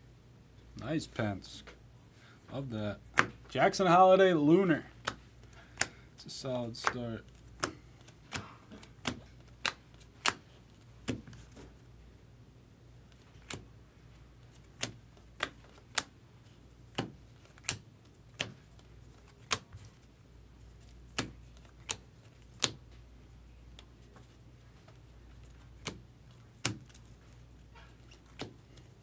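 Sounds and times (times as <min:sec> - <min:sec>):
trading cards flicked clicking: 0:06.8 - 0:11.4, 0:13.1 - 0:13.7, 0:14.6 - 0:16.1, 0:21.1 - 0:23.0.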